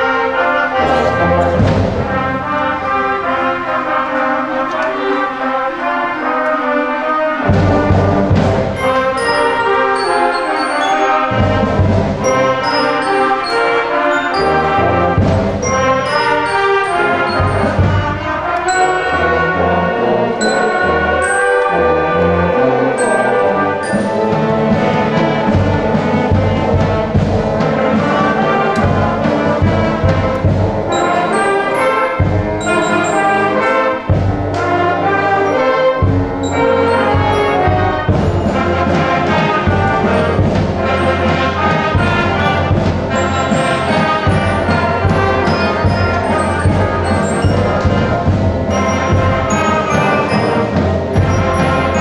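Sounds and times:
concert band playing: 0.0s - 52.0s
timpani: 0.0s - 52.0s.

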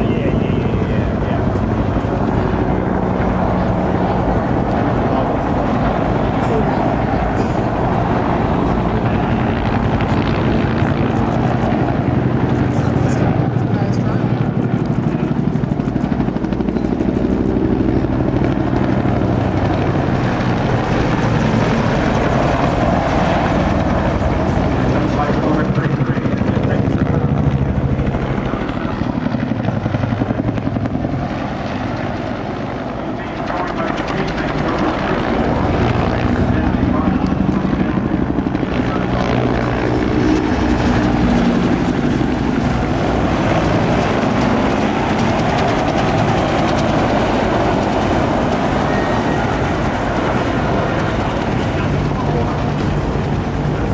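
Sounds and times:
helicopter engine noise: 0.0s - 53.9s
helicopter rotor thumping: 0.0s - 53.9s.

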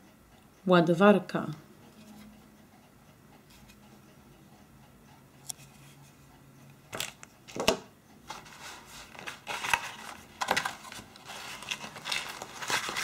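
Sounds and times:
plastic clacks on wooden table: 7.0s - 7.9s
cardboard rustling and scraping: 8.3s - 13.0s.

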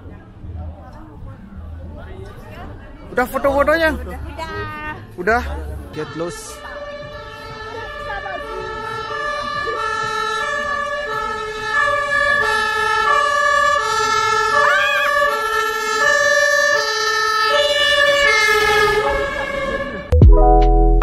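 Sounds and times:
two-tone siren: 5.9s - 20.2s.

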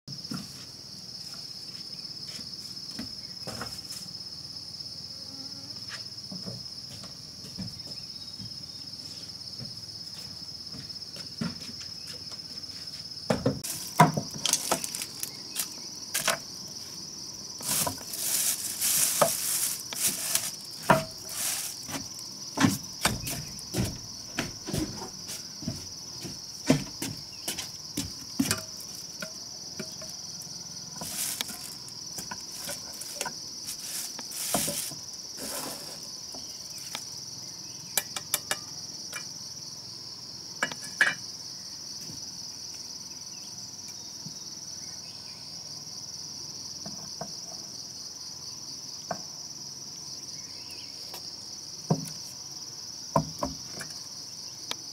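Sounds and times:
insect chorus: 0.0s - 54.9s
plastic bag rustling: 13.7s - 16.3s, 17.6s - 22.2s, 31.0s - 31.8s, 32.4s - 35.0s
clicks and knocks of tins: 38.0s - 39.3s.

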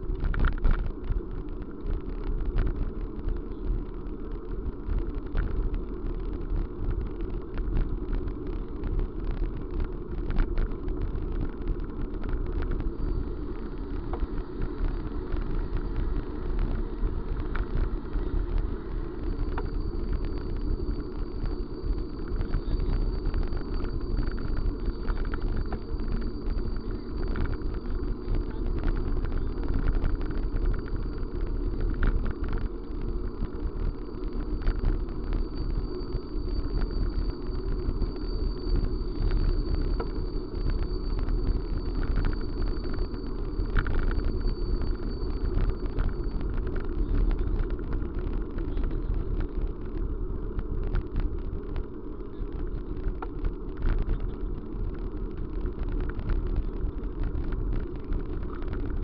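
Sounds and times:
faint high whine: 0.0s - 59.0s
small rattles and clicks: 0.0s - 59.0s
vehicle rumble: 0.0s - 59.0s.

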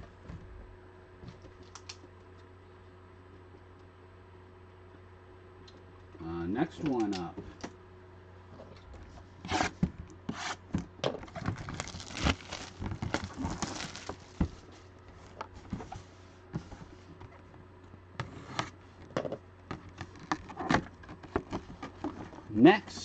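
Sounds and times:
cardboard boxes knocking and rustling: 10.6s - 17.4s, 19.1s - 22.5s.

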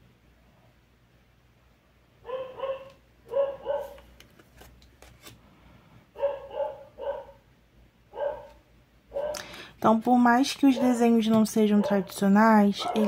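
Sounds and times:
dog barking: 2.2s - 4.0s, 6.2s - 7.4s, 8.1s - 9.5s, 11.7s - 12.2s, 12.8s - 13.0s.

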